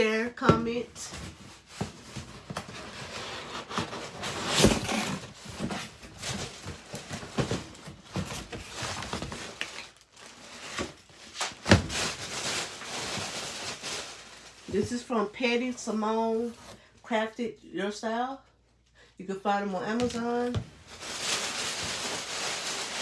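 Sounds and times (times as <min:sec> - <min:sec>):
cardboard scraping and tearing: 0:01.3 - 0:14.6.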